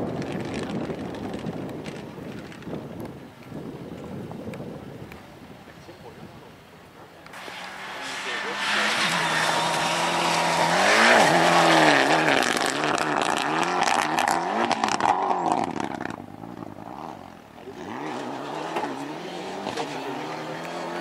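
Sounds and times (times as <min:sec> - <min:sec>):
exhaust crackles: 0:07.3 - 0:21.0
rally car engine revving: 0:07.3 - 0:21.0.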